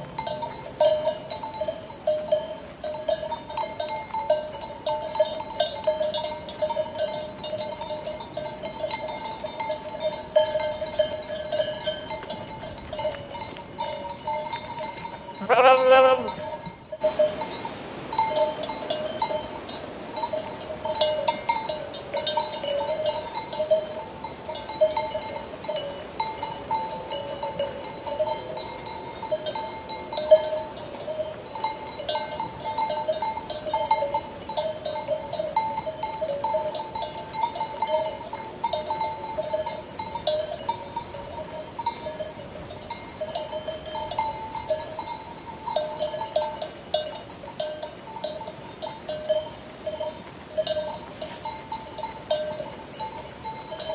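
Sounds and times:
sheep bells clinking: 0.0 - 53.9
sheep bleating: 15.4 - 16.4.

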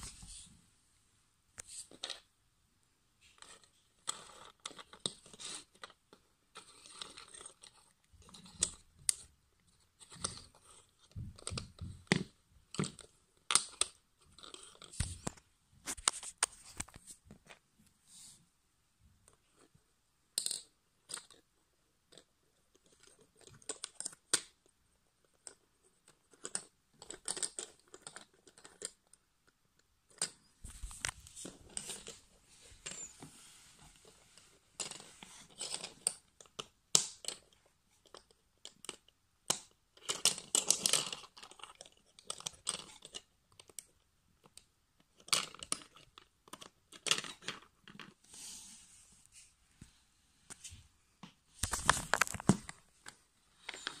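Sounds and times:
plastic gears clicking and rattling: 34.8 - 43.9, 44.5 - 48.2.

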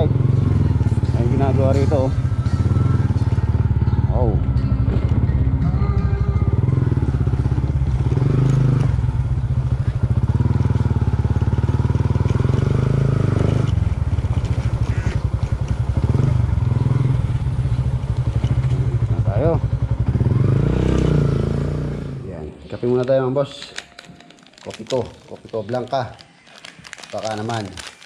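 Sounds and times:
motorcycle engine putter: 11.9 - 16.6, 17.6 - 19.8
tyres crunching over gravel: 22.7 - 28.0.

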